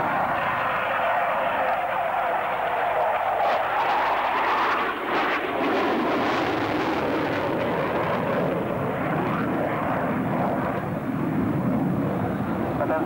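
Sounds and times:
jet flying past: 0.0s - 13.0s.

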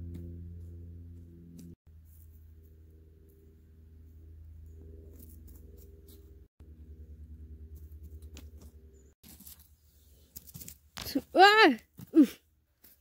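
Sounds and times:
low sustained music drone: 0.0s - 9.2s.

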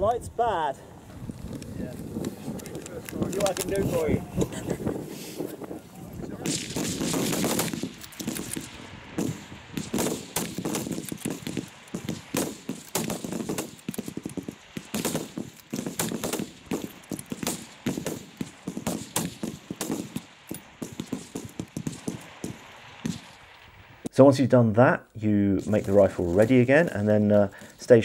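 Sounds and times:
rapid rifle shots: 6.4s - 23.5s.

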